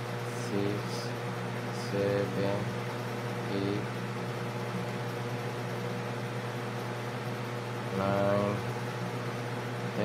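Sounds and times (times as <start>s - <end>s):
low machine hum with hiss: 0.0s - 10.0s
man speaking: 0.4s - 1.2s, 1.8s - 2.8s, 3.4s - 3.9s, 7.9s - 8.7s.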